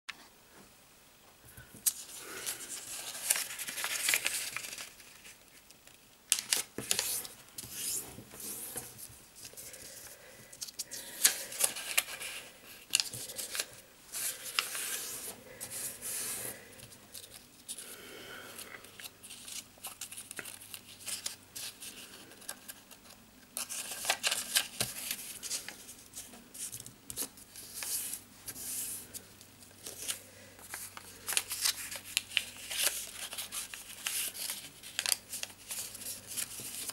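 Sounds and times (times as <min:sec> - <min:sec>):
paper creases crackling: 0:01.8 - 0:05.6, 0:29.8 - 0:36.9
paper crinkling and rustling: 0:01.8 - 0:18.0, 0:18.8 - 0:36.9.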